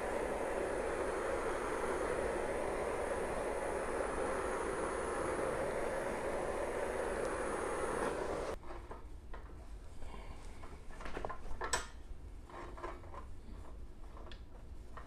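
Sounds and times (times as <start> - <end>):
torch flame hissing: 0.0 - 8.6.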